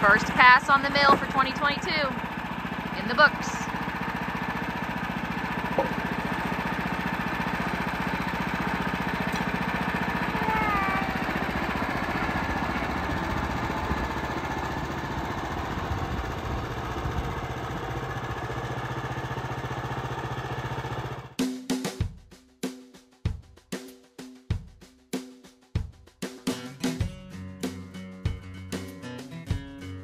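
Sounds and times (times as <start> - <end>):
sawmill gas engine running: 0.0 - 21.4.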